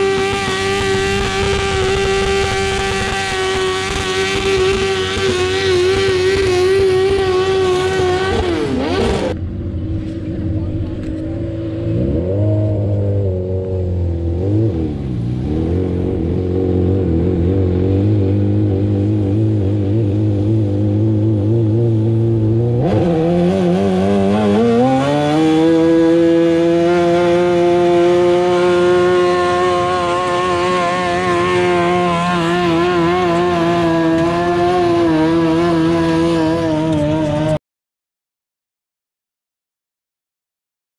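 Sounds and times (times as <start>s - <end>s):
tractor engine revving: 0.0s - 37.6s.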